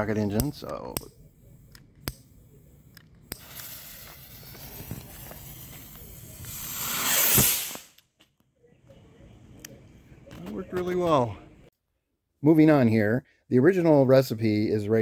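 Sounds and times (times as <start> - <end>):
fuse hissing: 1.2 - 7.9
rocket motor firing rush: 3.3 - 7.9.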